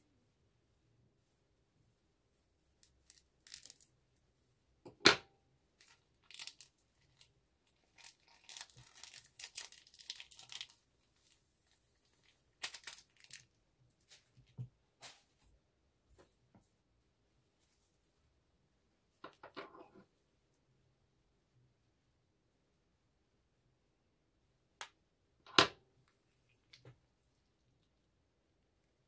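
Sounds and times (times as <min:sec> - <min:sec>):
plastic bag crinkling: 0:02.9 - 0:03.9, 0:05.8 - 0:14.3.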